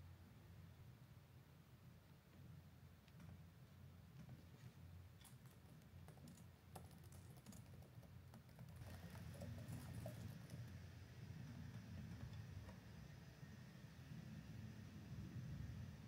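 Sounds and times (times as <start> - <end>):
typing on laptop keyboard: 5.2 - 10.8.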